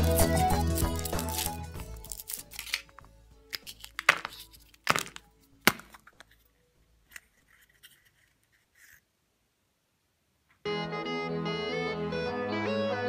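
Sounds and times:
chocolate shell cracking: 0.0 - 6.4
plastic capsule clicks: 0.9 - 6.4.

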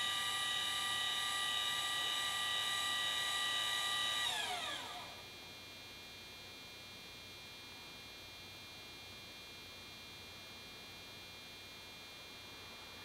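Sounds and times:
motor whining: 0.0 - 5.2.

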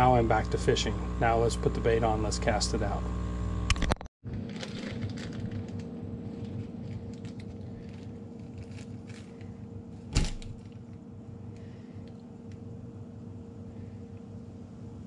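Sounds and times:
steady background hum: 0.0 - 15.0
plastic bag rustling: 4.3 - 10.7.

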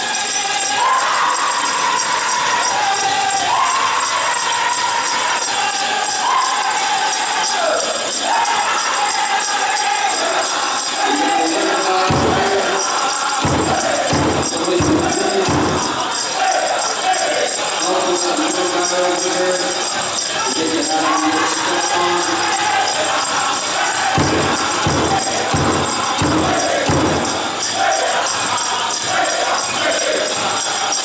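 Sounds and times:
bells jingling: 0.0 - 31.0
drum group singing: 0.0 - 31.0
loud drum beats: 9.1 - 18.9, 19.5 - 31.0.

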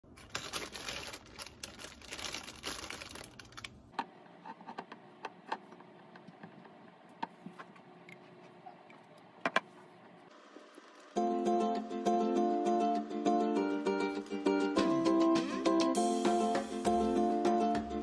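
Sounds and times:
plastic bag crinkling: 0.0 - 3.9.

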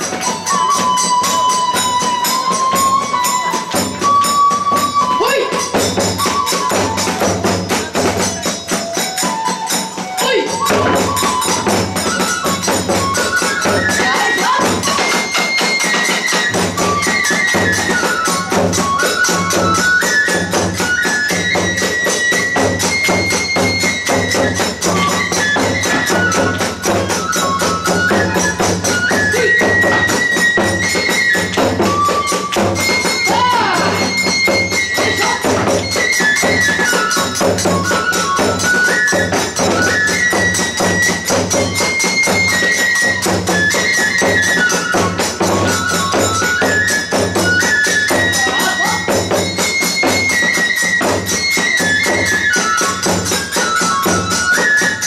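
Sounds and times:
bamboo flute melody: 0.0 - 55.0
hand cymbals clashing: 0.0 - 55.0.

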